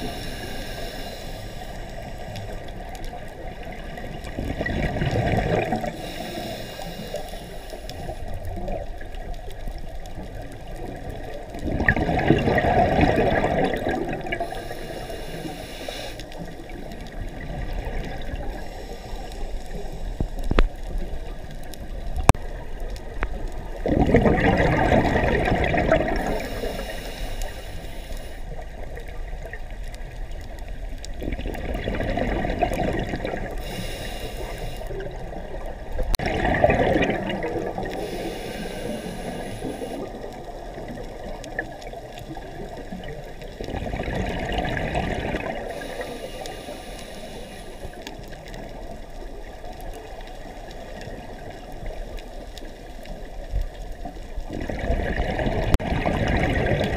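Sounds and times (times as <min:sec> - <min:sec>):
low underwater hiss: 0:00.0 - 0:56.9
underwater bubbles bursting: 0:02.2 - 0:06.2, 0:08.3 - 0:14.7, 0:16.3 - 0:18.7, 0:19.6 - 0:26.8, 0:28.6 - 0:33.8, 0:34.9 - 0:46.0, 0:48.0 - 0:56.9.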